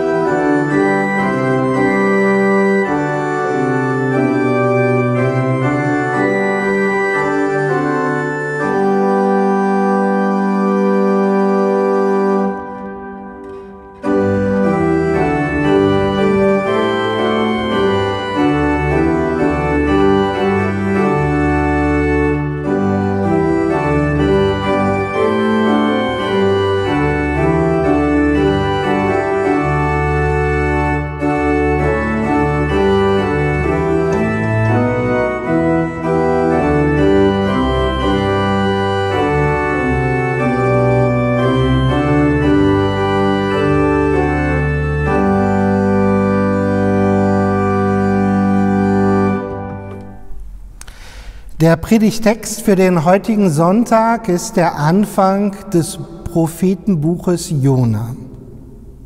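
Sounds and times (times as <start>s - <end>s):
church organ playing a hymn: 0.0s - 59.0s.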